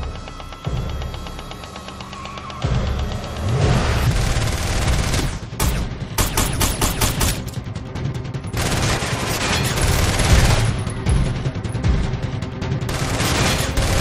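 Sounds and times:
dramatic film score: 0.0 - 14.0.

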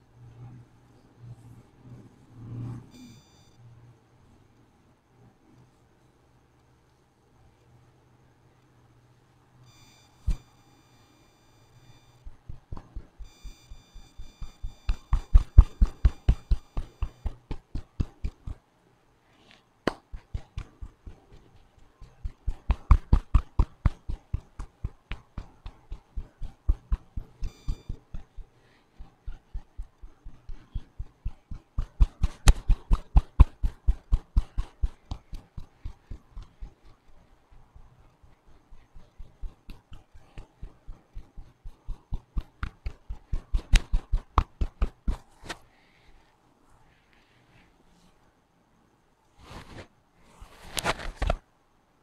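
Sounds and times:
hand striking head rapidly: 31.4 - 35.8.

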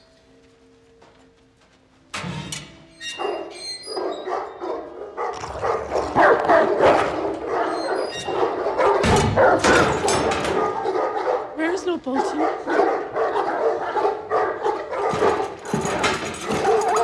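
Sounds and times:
dogs barking yelping and whining: 3.0 - 17.0.

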